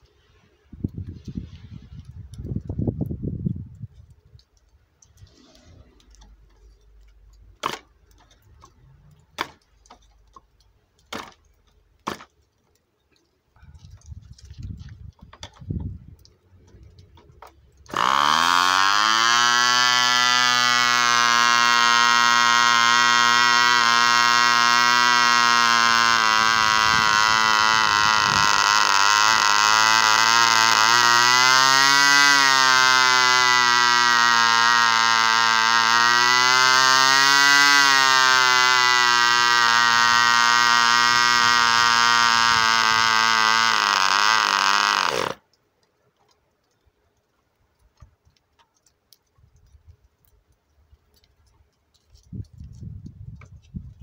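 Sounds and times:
small model engine running high: 17.9s - 45.4s.

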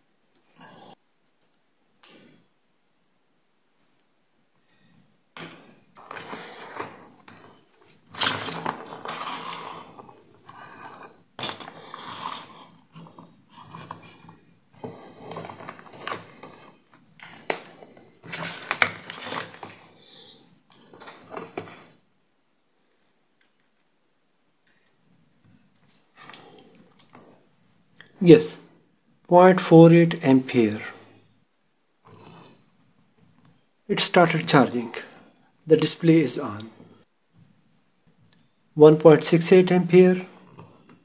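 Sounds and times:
plastic and metal parts clattering: 5.4s - 20.0s, 20.7s - 21.9s.

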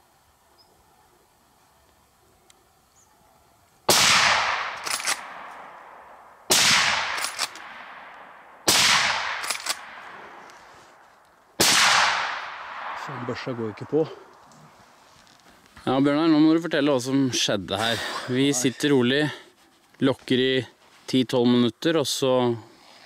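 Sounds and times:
rifle shots with echo: 3.9s - 10.4s, 11.6s - 14.2s.

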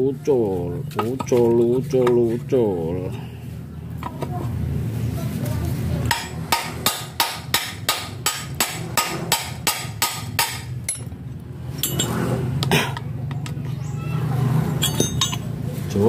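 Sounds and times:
hammer striking steel bar: 6.1s - 11.1s.

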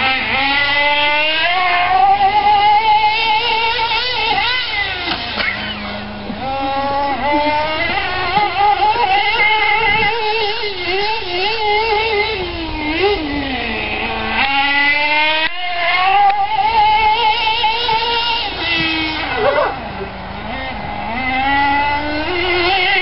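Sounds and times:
small engine revving: 0.0s - 23.0s.

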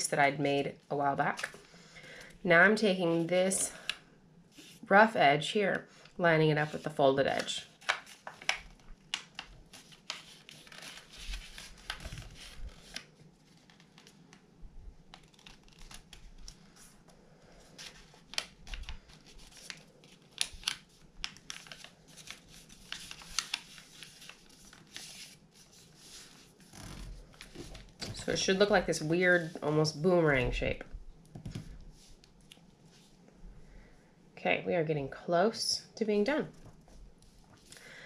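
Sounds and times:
paper rustling and crinkling: 6.6s - 14.4s, 15.1s - 29.7s.

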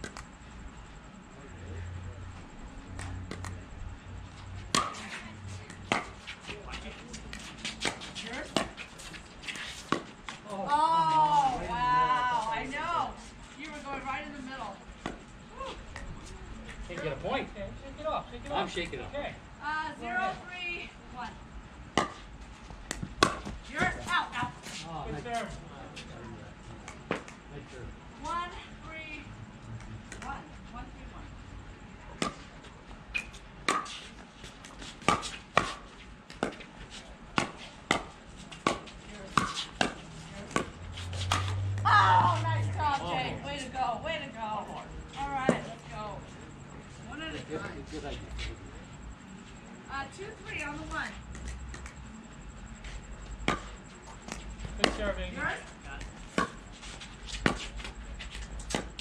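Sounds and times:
pickleball paddle hits and bounces: 4.7s - 5.0s, 22.9s - 23.9s, 37.3s - 42.3s, 53.5s - 55.1s.

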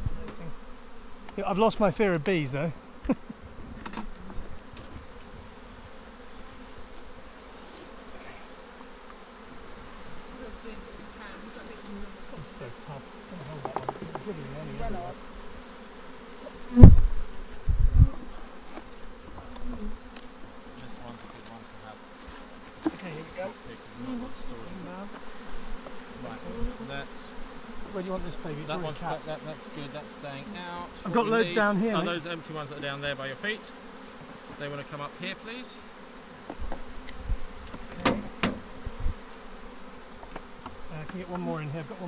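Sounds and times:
bees buzzing: 0.0s - 42.0s
dull thumps: 36.4s - 39.2s.

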